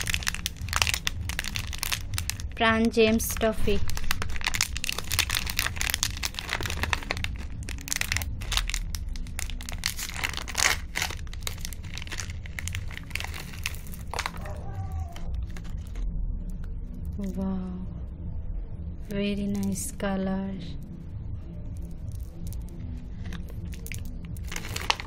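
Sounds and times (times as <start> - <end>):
plastic candy wrapper crinkling: 0.0 - 16.0, 21.8 - 25.0.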